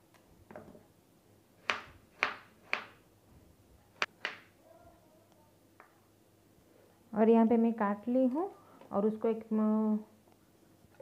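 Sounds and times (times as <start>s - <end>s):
knife chopping on wooden board: 1.6s - 3.0s.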